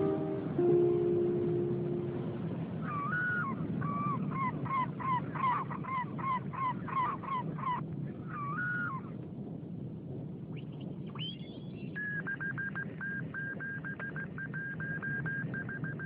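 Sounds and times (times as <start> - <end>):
plucked guitar note: 0.0 - 2.8
gull calling: 0.0 - 9.2
low rumble: 0.0 - 11.8.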